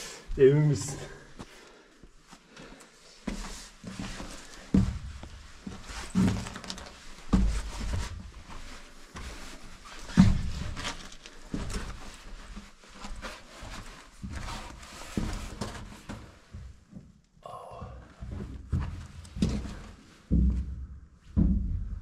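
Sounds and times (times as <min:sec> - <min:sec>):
heavy breathing: 0:00.0 - 0:00.3, 0:17.4 - 0:18.5.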